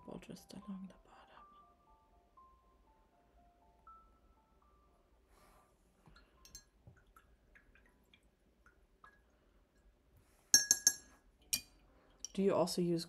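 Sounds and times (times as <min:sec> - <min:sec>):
brush clinking against a dish: 0:10.5 - 0:12.4.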